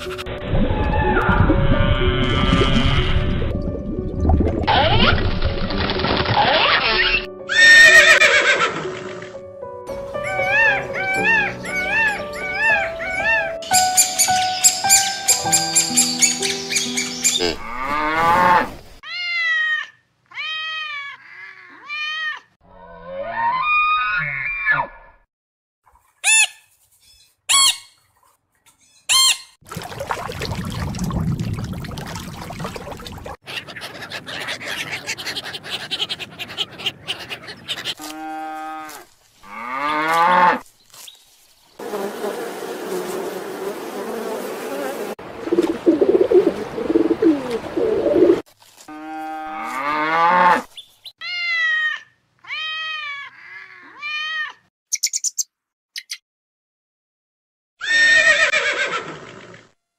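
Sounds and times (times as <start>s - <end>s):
animal calls with pitch glides: 0.0s - 3.4s, 10.2s - 13.7s, 45.5s - 48.4s
macaw squawking: 10.2s - 17.6s, 26.2s - 28.0s, 33.5s - 38.0s
bees buzzing: 41.8s - 48.4s.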